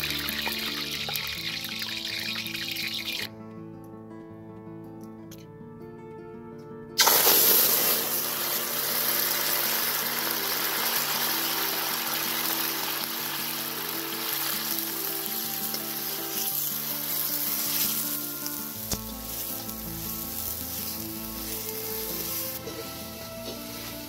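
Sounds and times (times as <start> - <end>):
food sizzling in hot oil: 0.0 - 3.3, 7.0 - 24.0
background music: 0.0 - 24.0.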